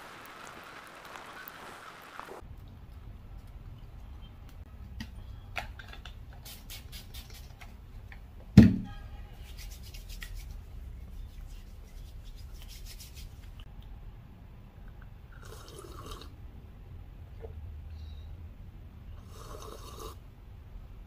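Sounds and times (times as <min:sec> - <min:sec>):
hands rubbing together: 0:06.4 - 0:07.7, 0:09.4 - 0:13.6.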